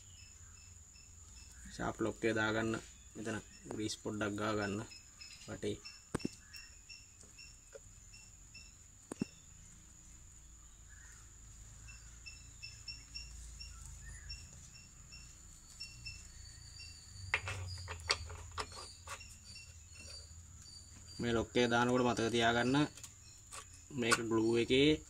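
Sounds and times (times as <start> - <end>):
crickets chirping faintly: 0.0 - 25.0.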